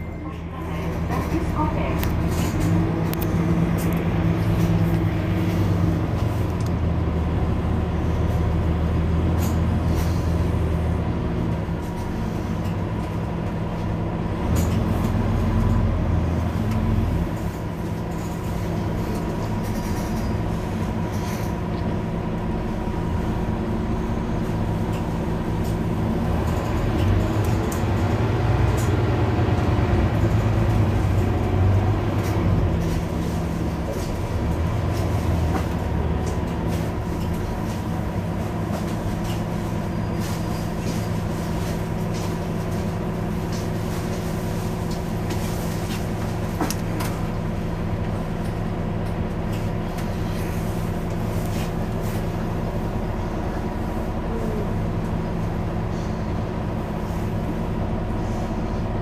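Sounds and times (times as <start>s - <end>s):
bus diesel engine idling: 0.0s - 59.0s.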